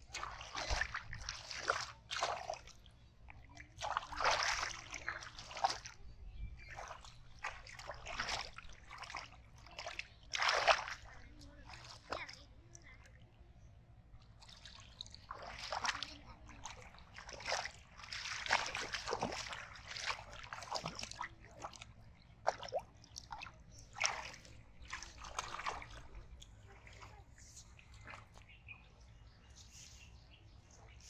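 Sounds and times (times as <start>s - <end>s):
muddy water splashing: 0.0s - 13.2s, 14.0s - 29.0s.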